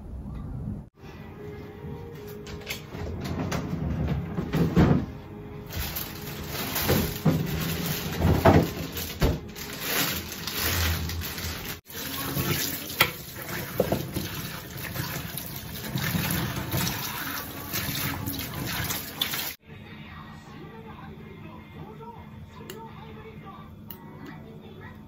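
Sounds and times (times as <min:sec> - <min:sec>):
tap water running into colander: 0:09.8 - 0:19.6.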